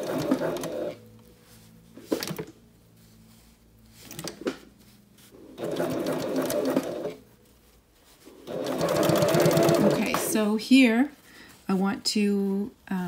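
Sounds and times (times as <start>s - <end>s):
sewing machine stitching: 0.0s - 1.0s, 5.5s - 7.2s, 8.4s - 10.4s.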